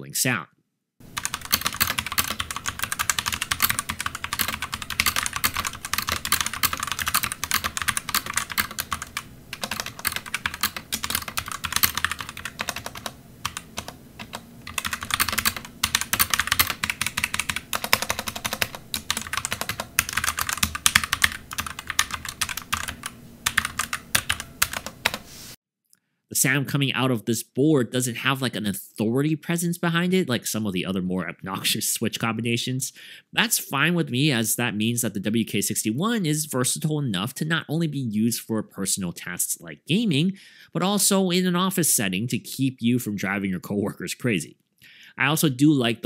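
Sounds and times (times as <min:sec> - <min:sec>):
fast typing on mechanical keyboard: 0:01.2 - 0:25.2.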